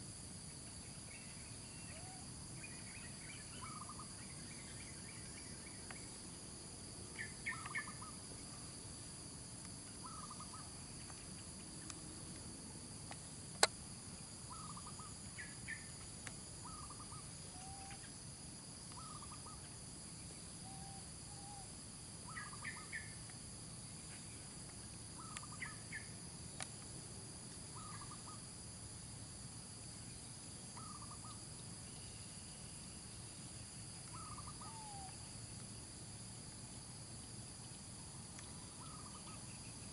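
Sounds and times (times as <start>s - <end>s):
high-pitched insect chorus: 0.0s - 39.9s
short chirping calls: 34.1s - 35.2s.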